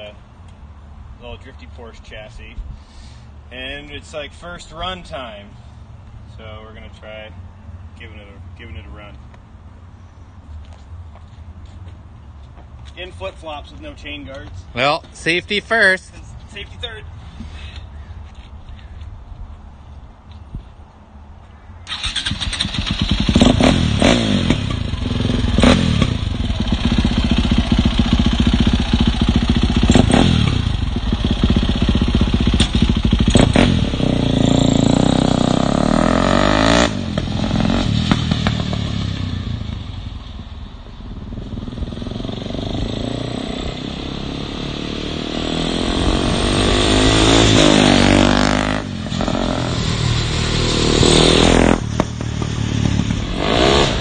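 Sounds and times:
dirt bike engine revving: 21.9s - 39.7s, 41.3s - 54.0s.

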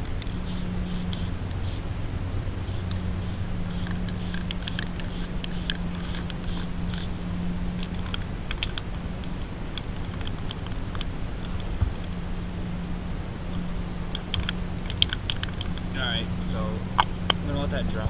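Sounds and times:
steady low hum: 0.0s - 18.0s
spray can hissing: 0.1s - 7.2s
sharp clicks: 7.8s - 12.1s, 14.1s - 15.9s.

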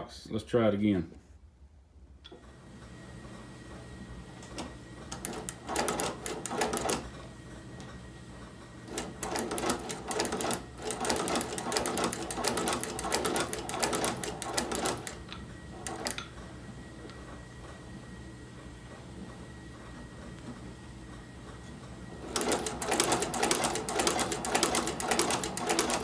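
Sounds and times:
sewing machine clattering: 4.5s - 7.2s, 8.8s - 16.2s, 22.2s - 26.0s.

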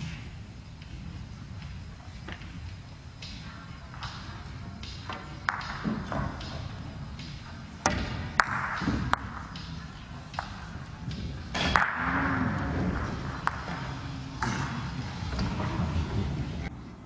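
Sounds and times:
murmur of large hall: 0.0s - 17.0s
pool balls clacking: 3.9s - 16.7s.

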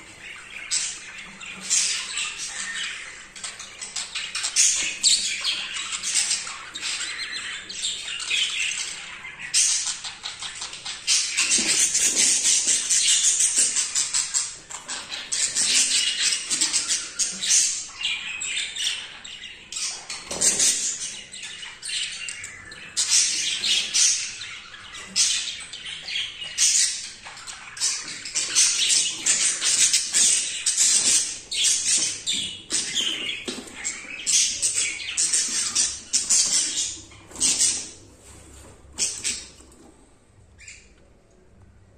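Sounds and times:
budgerigars chirping and chattering: 0.0s - 39.9s, 40.5s - 41.0s.

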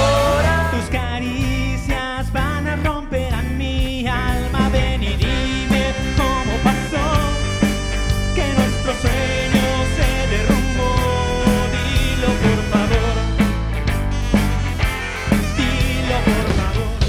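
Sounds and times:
lead vocal singing: 0.0s - 13.6s, 15.1s - 17.0s
rock band playing live: 0.0s - 17.0s.

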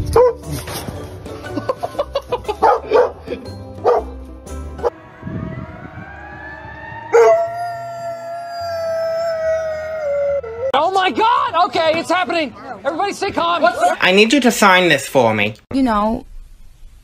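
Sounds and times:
dog barks: 2.6s - 4.2s
dog howling: 7.0s - 10.8s.

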